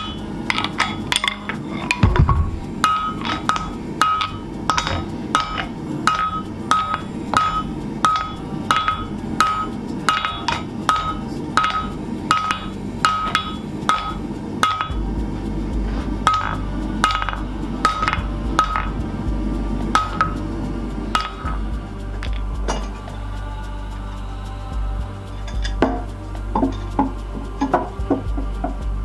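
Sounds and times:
hammer striking metal with ring: 0.0s - 15.0s, 16.3s - 19.0s.

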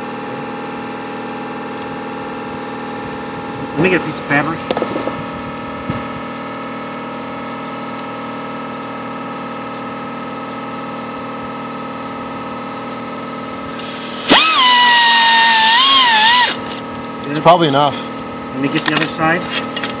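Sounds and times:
steady machine hum: 0.0s - 20.0s
die grinder whining: 13.6s - 18.2s.

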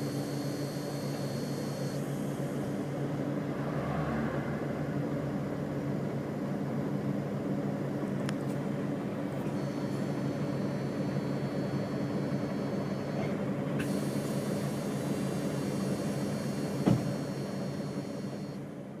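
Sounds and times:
thin high whine: 0.0s - 2.1s
bus diesel engine running: 0.0s - 19.0s.

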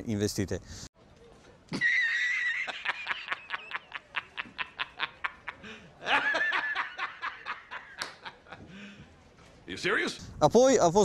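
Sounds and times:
man laughing hard: 1.8s - 8.6s.

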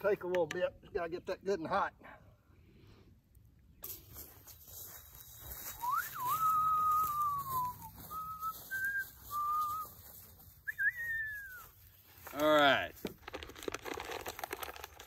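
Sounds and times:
person whistling a tune: 5.6s - 10.0s, 10.6s - 11.7s.

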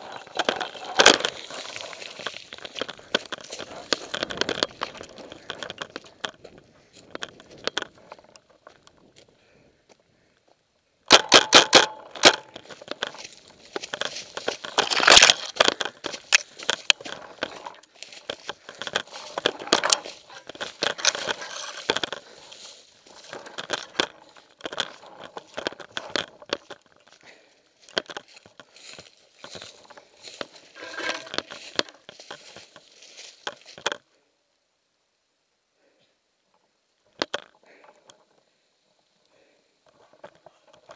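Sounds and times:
footsteps crunching dry leaves: 0.0s - 8.0s, 12.2s - 33.8s
branches crackling and scraping: 0.0s - 10.3s, 11.2s - 34.3s, 37.0s - 40.9s.

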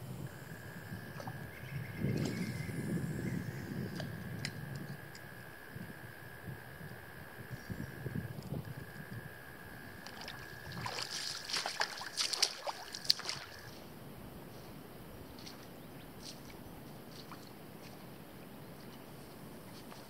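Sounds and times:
faint water ticks: 0.2s - 13.9s, 15.3s - 20.0s
footsteps wading through water: 10.0s - 13.9s, 15.3s - 19.1s.

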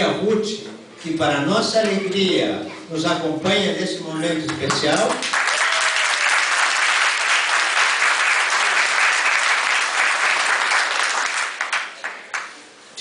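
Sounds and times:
people applauding: 4.5s - 12.7s.

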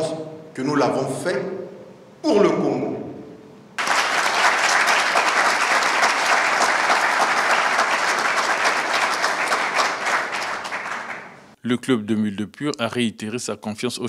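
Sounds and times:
audience applauding: 3.8s - 11.6s.

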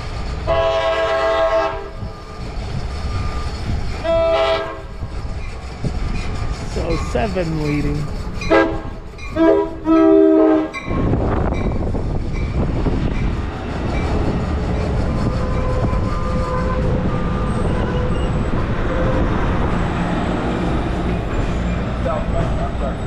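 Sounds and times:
train wheels rumbling on rail: 0.0s - 23.0s
wheel and brake squeals: 1.9s - 7.0s, 14.0s - 19.3s.

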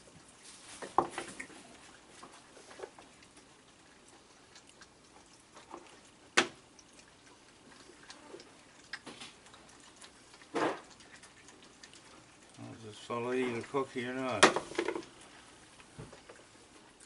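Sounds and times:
raccoons eating clicks and taps: 0.0s - 17.0s.

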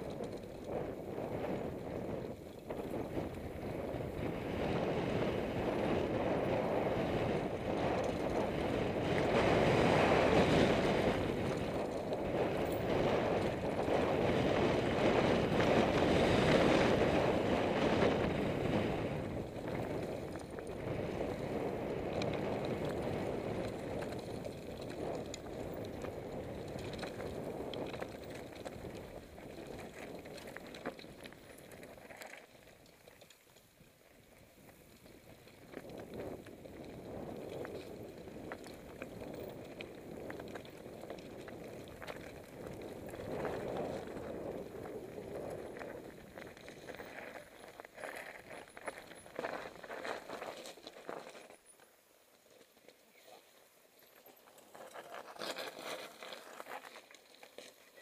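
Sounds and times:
wind rushing over microphone: 0.0s - 30.6s, 35.6s - 47.2s
bike tyres rolling on dirt: 0.0s - 58.0s.

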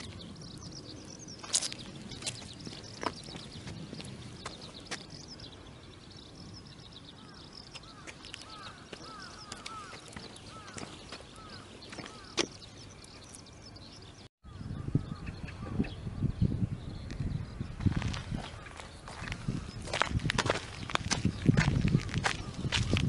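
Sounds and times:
steady outdoor hiss: 0.0s - 20.9s
small birds chirping: 0.0s - 23.0s
footsteps on wet asphalt: 1.4s - 5.2s, 7.8s - 12.6s, 17.8s - 23.0s
rustling steps: 7.8s - 12.7s.

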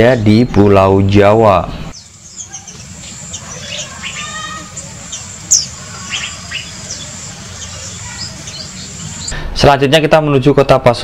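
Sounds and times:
bird chirps and whistles: 2.0s - 9.3s.

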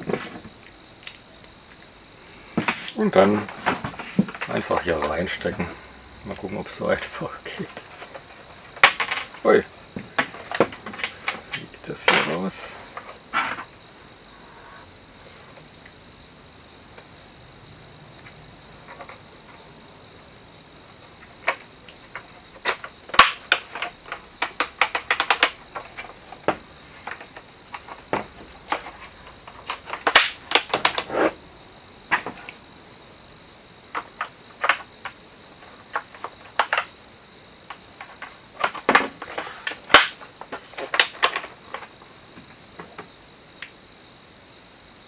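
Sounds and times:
plastic toy parts clicking: 21.4s - 26.1s, 28.7s - 31.1s, 33.9s - 34.9s, 35.9s - 36.9s, 37.7s - 41.8s.

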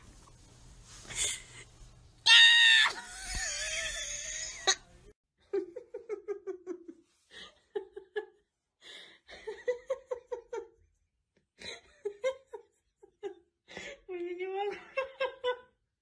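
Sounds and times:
person giggling: 3.0s - 4.8s.

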